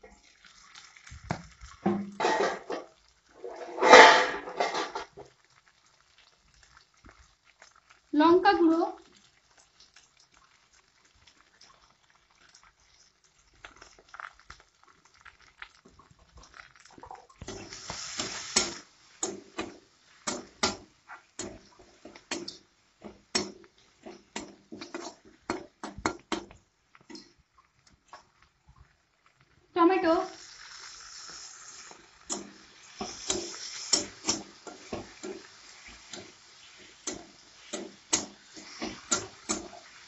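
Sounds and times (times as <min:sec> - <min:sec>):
metal spatula scraping a pan: 0:01.9 - 0:05.2, 0:17.5 - 0:25.7, 0:30.7 - 0:40.0
brief frying hiss: 0:17.4 - 0:21.5, 0:30.3 - 0:40.0.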